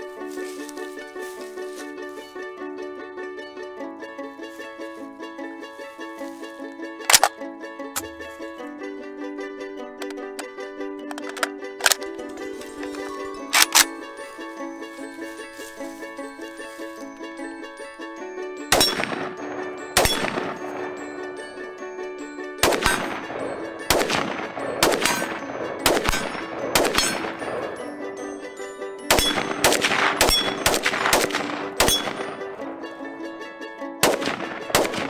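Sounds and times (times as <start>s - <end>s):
background music: 0.0s - 35.0s
rifle shots: 22.6s - 23.2s, 23.9s - 27.3s, 29.1s - 32.3s, 34.0s - 35.0s.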